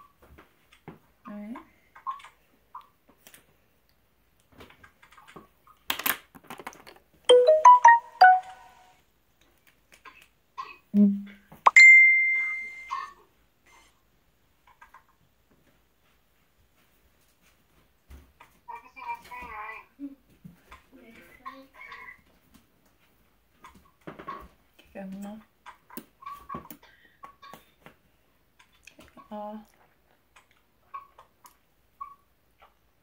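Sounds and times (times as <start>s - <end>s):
electronic chime notes: 7.3s - 8.8s, 11.7s - 13.0s
high beep: 7.3s - 8.8s, 11.7s - 13.0s.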